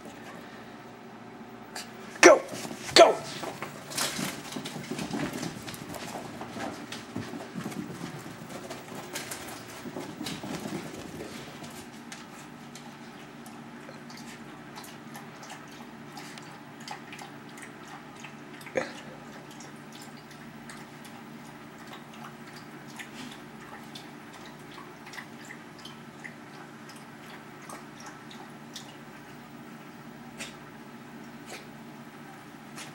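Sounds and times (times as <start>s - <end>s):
dog lapping water: 12.7s - 30.6s.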